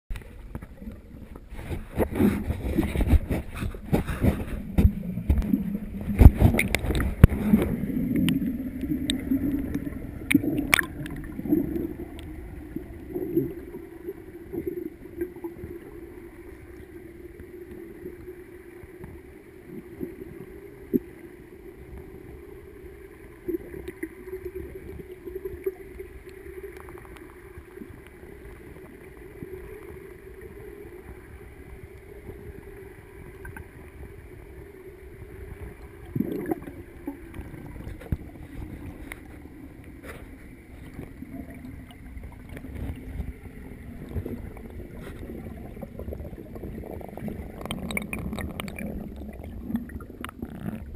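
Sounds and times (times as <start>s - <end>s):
bubbly gurgles: 0.7s - 16.3s, 35.2s - 39.3s, 40.6s - 50.9s
underwater clicks: 1.9s - 12.3s, 46.9s - 50.9s.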